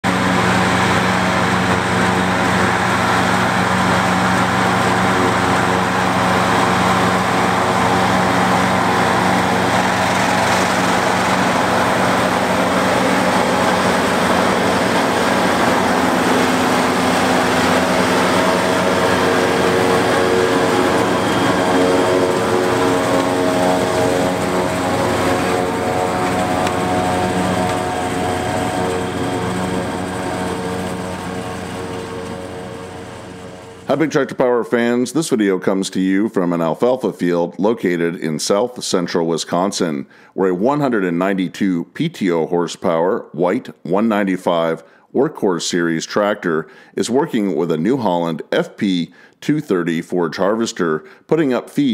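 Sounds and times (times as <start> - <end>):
tractor diesel engine running: 0.0 - 34.3
forage harvester chopping: 9.6 - 16.4, 17.0 - 30.0.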